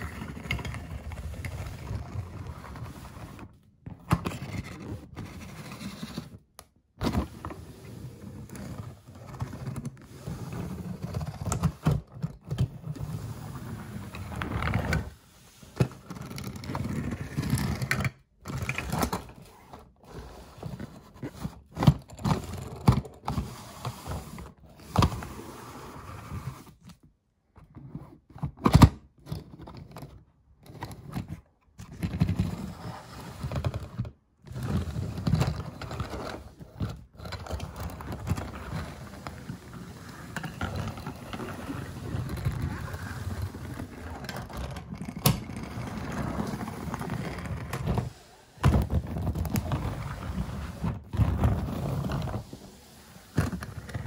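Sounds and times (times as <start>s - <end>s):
toy cars rolling on hard surface: 34.5s - 54.0s.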